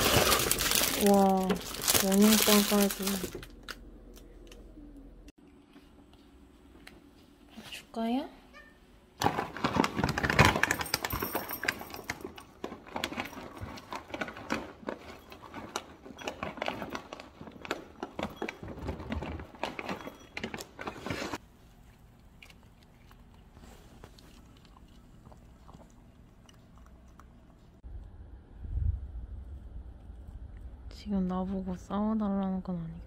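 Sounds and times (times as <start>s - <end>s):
kibble rattling into bowl: 0.0s - 3.5s, 9.2s - 21.2s
cat crunching kibble: 21.5s - 27.8s.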